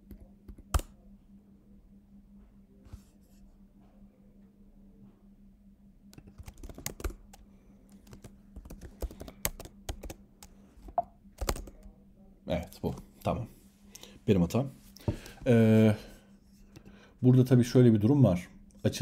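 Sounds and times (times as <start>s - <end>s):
typing on computer keyboard: 6.2s - 10.5s, 11.4s - 11.9s.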